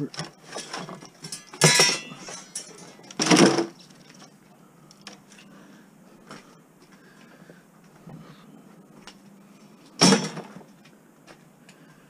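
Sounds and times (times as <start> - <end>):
metal parts clattering: 0.0 - 4.4
loud metal clangs: 0.5 - 3.8, 10.0 - 10.6.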